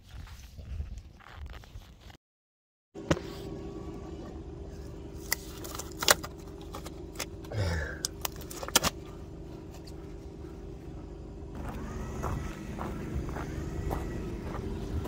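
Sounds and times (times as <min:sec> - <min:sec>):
steady low hum: 0:03.0 - 0:15.0.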